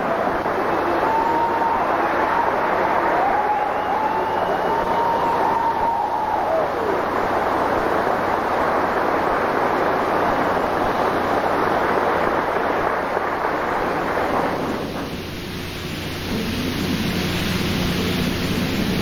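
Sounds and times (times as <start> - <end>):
audience applauding: 0.0 - 14.8.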